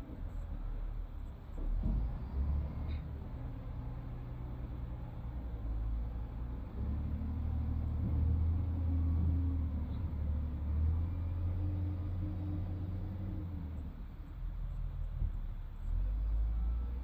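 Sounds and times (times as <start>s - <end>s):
excavator diesel engine rumbling: 0.0s - 17.0s.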